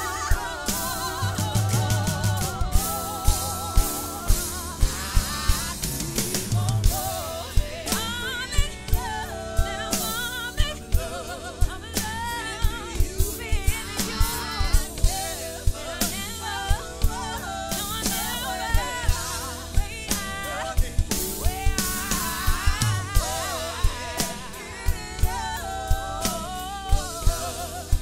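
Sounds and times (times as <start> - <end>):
drum kit playing slow groove: 0.0 - 28.0
sustained backing chords: 0.0 - 28.0
woman singing: 0.0 - 28.0.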